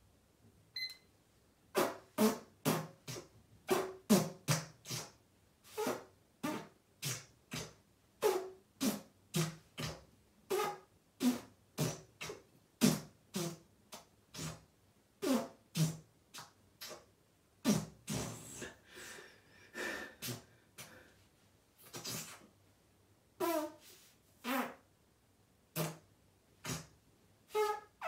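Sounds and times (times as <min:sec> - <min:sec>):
short sharp farts: 0:01.7 - 0:18.8, 0:20.2 - 0:20.5, 0:21.8 - 0:22.5, 0:23.4 - 0:24.9, 0:25.7 - 0:28.0
air sucked into rectum: 0:17.6 - 0:18.8.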